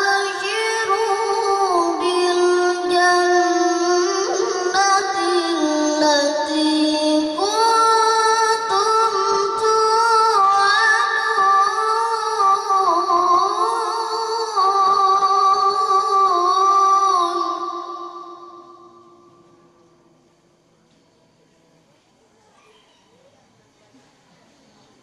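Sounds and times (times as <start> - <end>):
boy reciting melodically: 0.0 - 20.0.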